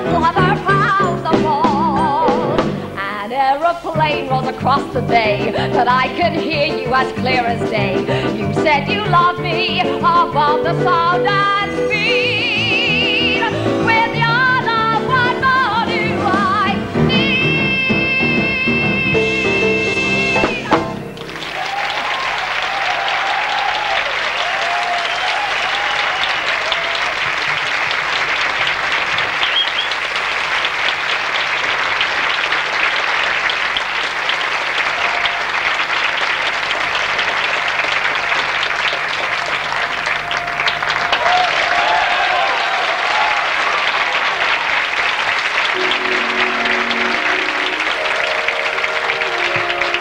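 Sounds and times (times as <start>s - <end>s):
song closing note: 17.0s - 21.5s, 45.8s - 50.0s
audience applause: 18.7s - 50.0s.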